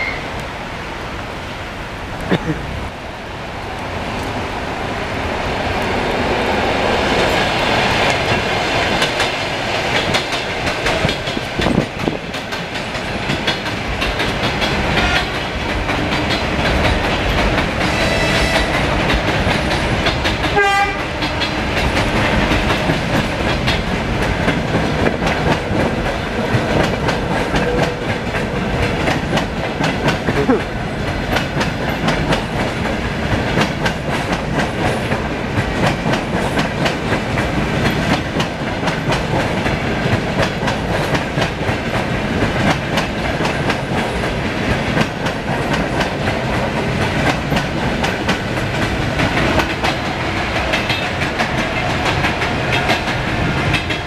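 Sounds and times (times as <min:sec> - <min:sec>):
train horn: 0:00.0 - 0:00.4, 0:14.9 - 0:15.5, 0:17.8 - 0:19.0, 0:20.5 - 0:21.5
train wheels rumbling on rails: 0:00.0 - 0:54.0
clickety-clack over rail joints: 0:05.2 - 0:54.0.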